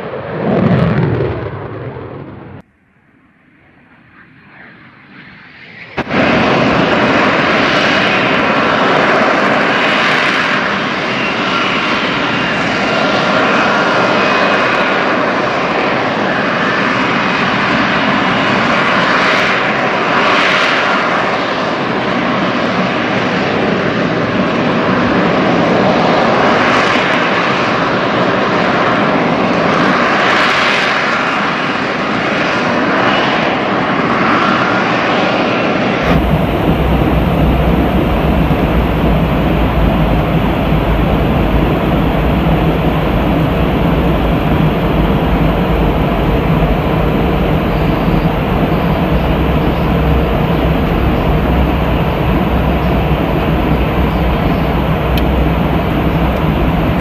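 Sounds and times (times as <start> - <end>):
jet engine roar: 0.0 - 57.0
whistling whine: 36.1 - 57.0.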